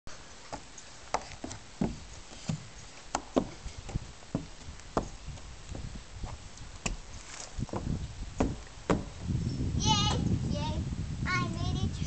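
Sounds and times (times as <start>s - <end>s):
knocking on plastic climbing wall: 7.8s - 9.1s.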